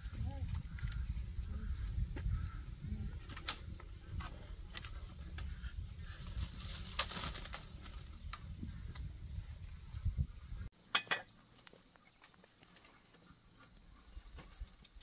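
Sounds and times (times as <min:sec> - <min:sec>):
wind rumble on microphone: 0:00.0 - 0:10.7.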